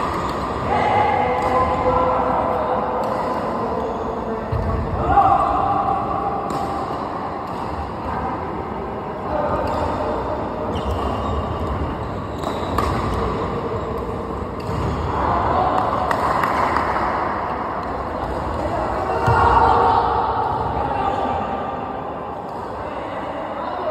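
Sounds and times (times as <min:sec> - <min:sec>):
background noise: 0:00.0 - 0:23.9
racket hitting shuttlecock: 0:06.4 - 0:08.0, 0:12.4 - 0:13.5.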